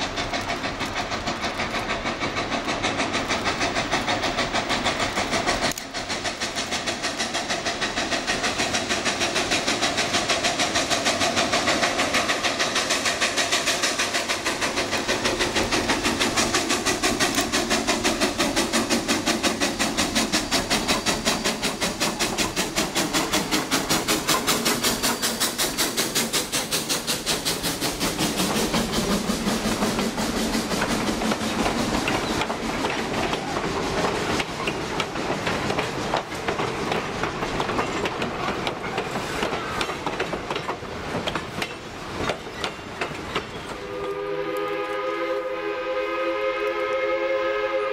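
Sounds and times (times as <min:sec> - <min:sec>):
hiss of steam: 0:00.0 - 0:47.9
steam locomotive exhaust beat: 0:00.0 - 0:47.9
train wheels clicking over rail joints: 0:00.0 - 0:47.9.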